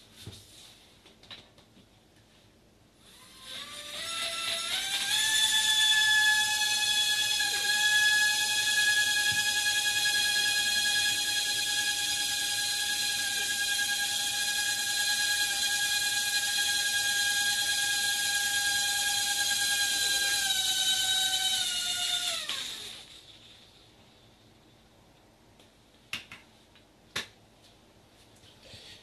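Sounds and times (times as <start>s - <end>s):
small electric motor whine: 3.0s - 23.4s.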